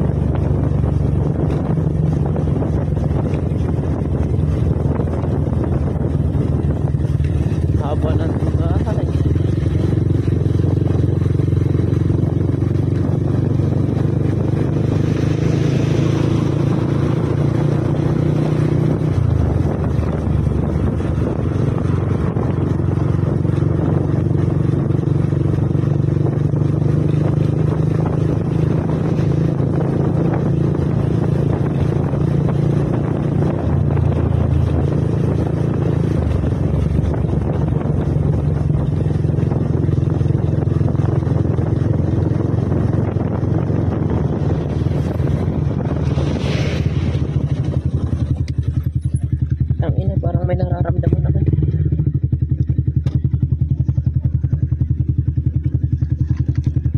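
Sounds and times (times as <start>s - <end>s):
road and wind noise: 0.0s - 56.9s
vehicle engine running: 0.0s - 56.9s.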